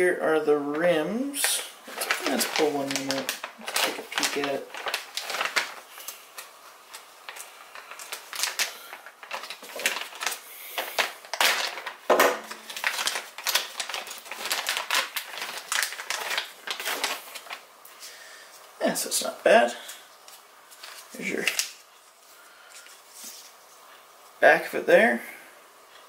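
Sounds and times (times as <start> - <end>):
plastic bag crinkling: 0.7 - 18.1, 19.0 - 22.1.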